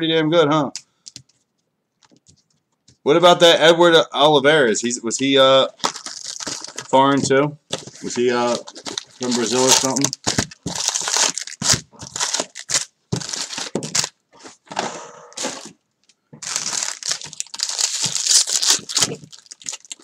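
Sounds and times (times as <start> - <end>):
wrappers crinkling and tearing: 5.7 - 7.0, 7.8 - 14.6, 16.4 - 20.0.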